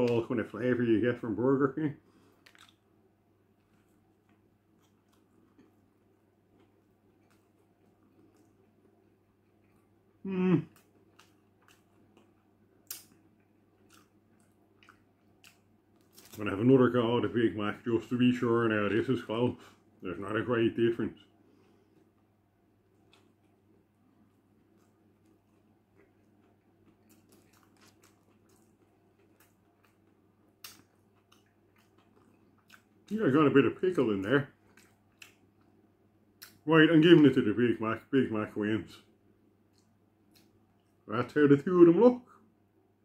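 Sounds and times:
person chewing: 2.2 - 16.4, 21.5 - 33.2, 34.6 - 35.8.

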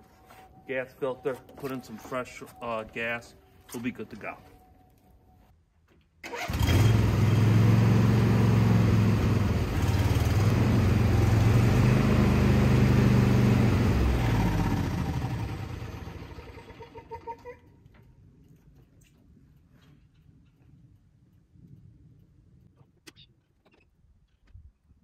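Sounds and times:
riding mower engine running: 6.3 - 16.8.

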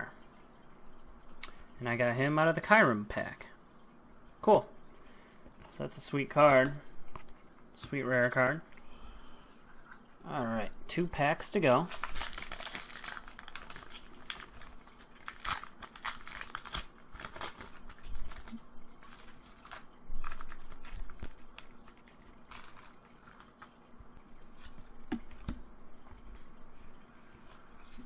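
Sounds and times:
foil wrapper crinkling: 11.7 - 23.8.

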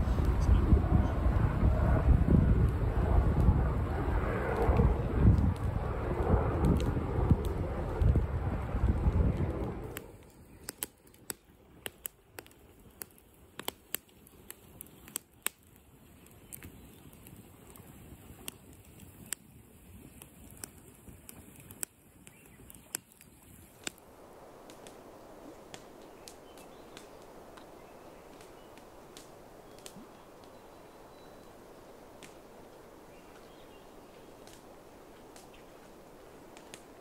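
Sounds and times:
faint sharp clicks and taps: 8.8 - 17.8
low hiss: 23.2 - 37.0.

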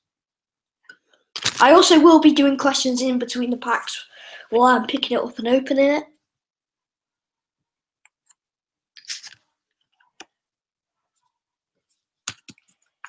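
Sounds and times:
paper rustle: 9.0 - 9.4.

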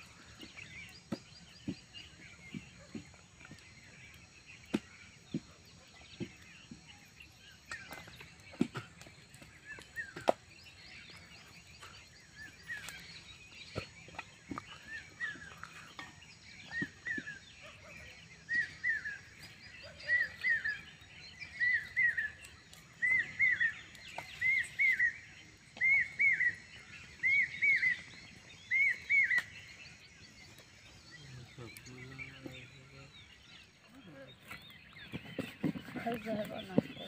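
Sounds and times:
bird whistling calls: 11.1 - 33.0.

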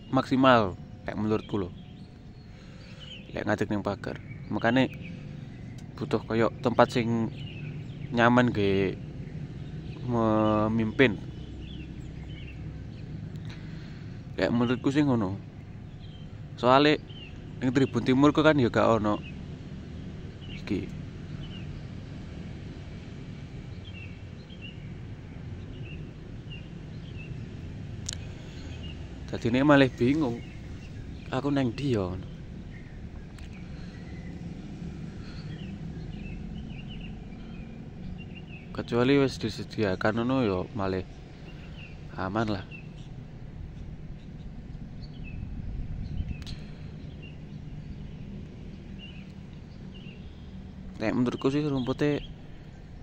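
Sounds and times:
bird chirping: 0.0 - 53.0
low rumble: 0.8 - 51.6.

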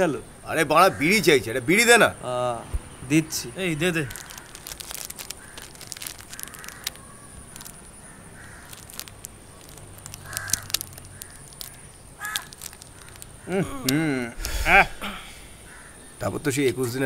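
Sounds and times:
steady outdoor background: 0.0 - 17.0
crows cawing: 0.6 - 1.4, 3.8 - 13.8, 14.4 - 16.2
sharp clicks: 4.1 - 8.0, 8.6 - 14.6.

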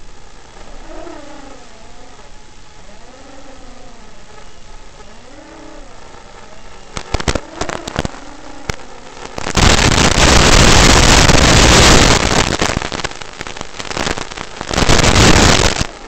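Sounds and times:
crackling static hiss: 0.0 - 16.0
sharp clicks: 6.9 - 9.5.

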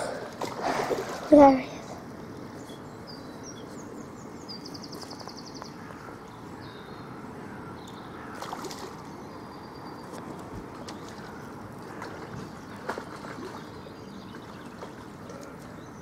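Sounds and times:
water sloshing around legs: 0.0 - 1.6, 8.2 - 9.1, 10.2 - 15.8
birds chirping: 1.0 - 16.0.

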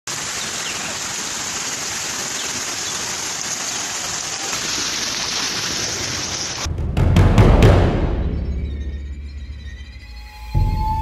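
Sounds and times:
rain falling on water: 0.1 - 6.7.

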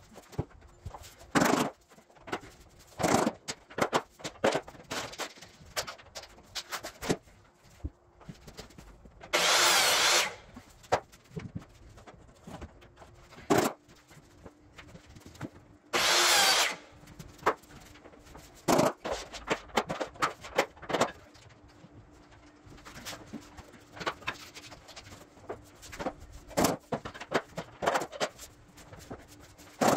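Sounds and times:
taps and knocks of vinyl planks: 0.0 - 9.4, 10.5 - 15.7, 17.0 - 29.9
power tool running: 9.3 - 10.5, 15.9 - 16.9.

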